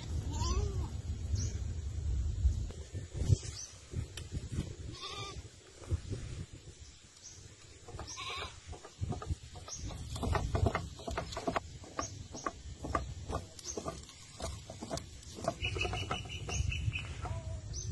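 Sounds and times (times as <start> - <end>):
animal bleating: 4.9 - 5.4, 8.0 - 8.6
irregular clicks and taps: 8.7 - 17.3.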